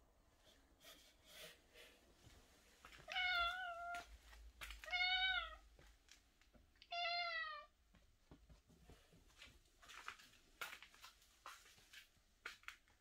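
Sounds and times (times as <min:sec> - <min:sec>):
cat meowing: 0:03.0 - 0:04.1, 0:04.8 - 0:05.6, 0:06.8 - 0:07.7.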